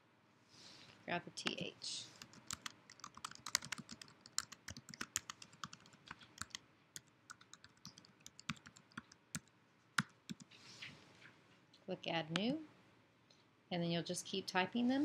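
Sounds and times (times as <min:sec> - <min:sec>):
keyboard typing: 0:02.2 - 0:10.5.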